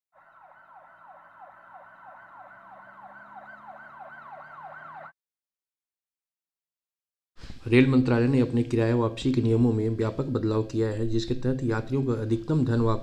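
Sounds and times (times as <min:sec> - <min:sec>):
siren-like wail: 0:00.1 - 0:05.2.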